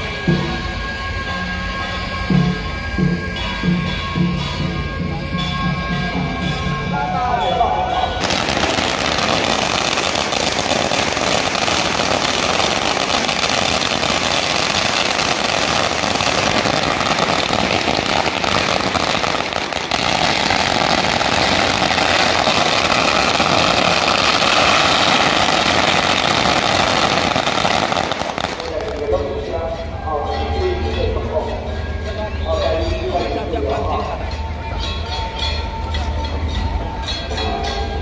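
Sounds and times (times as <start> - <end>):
string of firecrackers crackling: 8.2 - 30.0.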